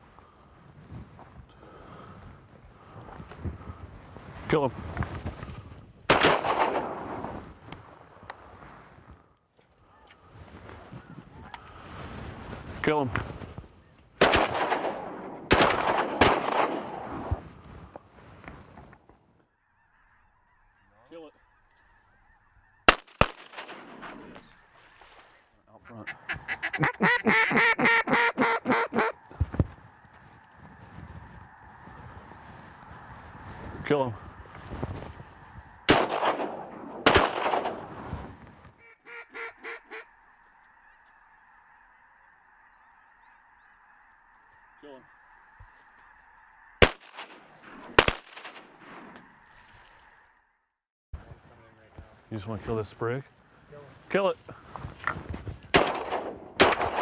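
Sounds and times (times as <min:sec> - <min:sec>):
shotgun blasts with echo: 0:06.1 - 0:07.4, 0:14.2 - 0:17.4, 0:22.9 - 0:24.5, 0:35.9 - 0:38.1, 0:46.8 - 0:49.3, 0:55.7 - 0:57.0.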